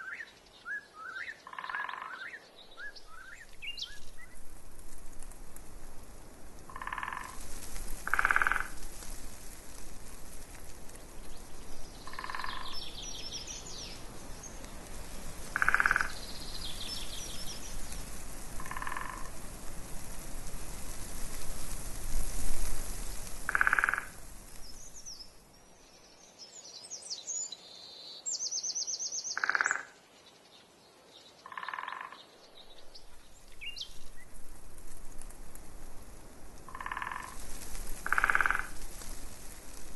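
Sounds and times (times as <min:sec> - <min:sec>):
frogs croaking: 0:01.1 - 0:02.4, 0:06.7 - 0:07.4, 0:08.0 - 0:08.8, 0:12.0 - 0:13.4, 0:15.5 - 0:17.4, 0:18.6 - 0:19.4, 0:23.4 - 0:24.3, 0:29.2 - 0:30.0, 0:31.4 - 0:32.4, 0:36.7 - 0:37.4, 0:38.0 - 0:38.9
wind buffeting microphone: 0:02.7 - 0:25.2
small birds trilling: 0:10.9 - 0:14.9, 0:15.5 - 0:19.3.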